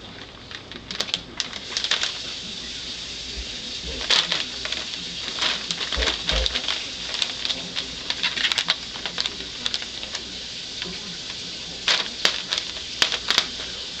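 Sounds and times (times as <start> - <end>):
plastic wrap crinkling: 0.0 - 14.0.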